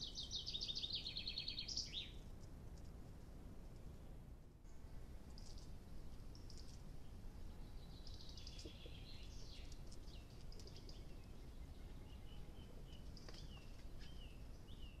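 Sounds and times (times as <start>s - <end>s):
birds chirping and whistling: 0.0s - 2.2s, 7.6s - 15.0s
faint low rumble: 0.0s - 15.0s.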